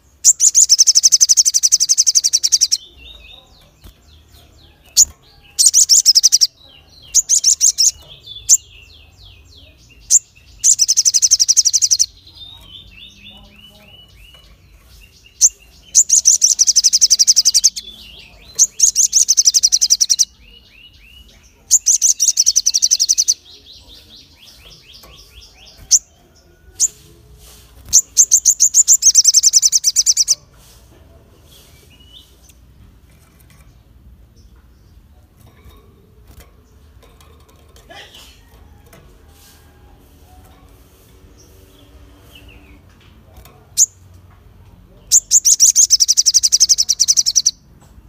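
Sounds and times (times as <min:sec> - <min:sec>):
bird singing rapid high trills: 0:00.0 - 0:26.2, 0:27.8 - 0:30.4, 0:45.1 - 0:47.6
fainter lower bird trills: 0:00.0 - 0:30.7, 0:45.1 - 0:47.6.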